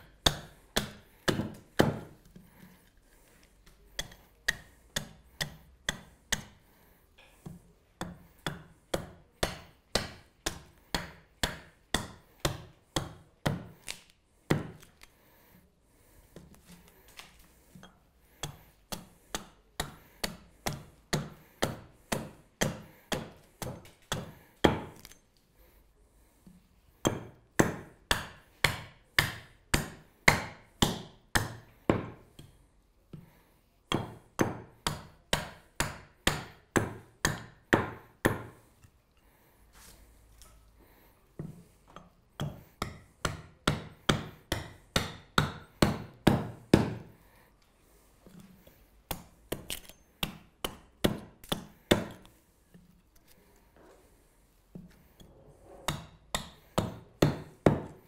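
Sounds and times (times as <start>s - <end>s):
axe chopping wood: 0.0s - 2.2s, 4.0s - 6.6s, 7.5s - 15.0s, 18.4s - 25.1s, 27.0s - 32.3s, 33.9s - 38.6s, 42.4s - 47.1s, 49.1s - 52.2s, 55.9s - 58.0s.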